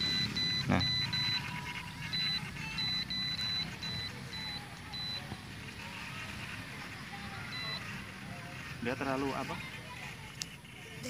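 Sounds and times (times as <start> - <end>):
transmitter beeping: 0.0 - 5.3, 7.5 - 7.9.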